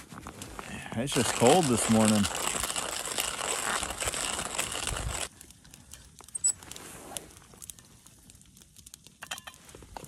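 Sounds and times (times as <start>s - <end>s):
coffee packet crinkling and tearing: 0.1s - 5.4s.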